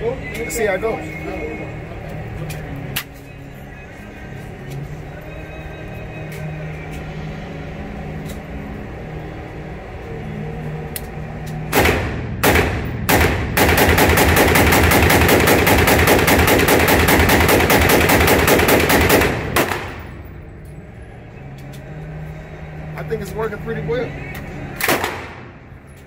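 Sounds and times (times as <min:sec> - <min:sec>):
pistol shots echoing indoors: 0:11.7 - 0:20.2, 0:24.8 - 0:25.5.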